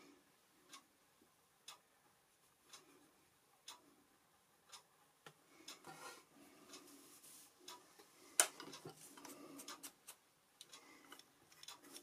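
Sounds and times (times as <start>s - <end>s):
brush rubbing across paper: 7.0s - 7.6s.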